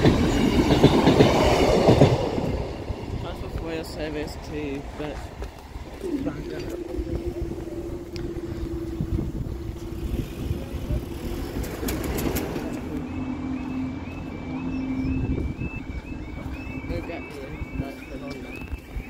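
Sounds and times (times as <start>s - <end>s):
road vehicles engine hum: 0.0s - 19.0s
level crossing warning alarm: 6.0s - 10.5s, 12.7s - 19.0s.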